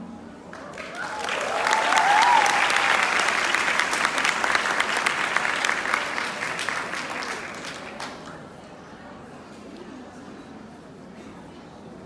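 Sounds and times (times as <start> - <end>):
audience applauding: 0.5 - 8.3.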